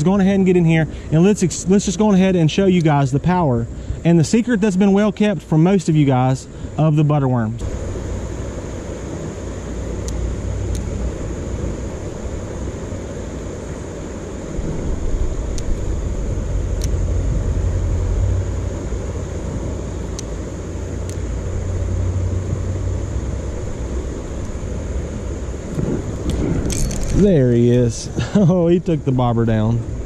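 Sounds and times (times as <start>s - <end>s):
faint high hiss: 0.0s - 30.0s
low outdoor rumble: 0.0s - 30.0s
faint high ticks: 10.0s - 10.9s, 15.5s - 15.9s, 16.7s - 17.1s, 20.1s - 20.4s, 21.0s - 21.3s.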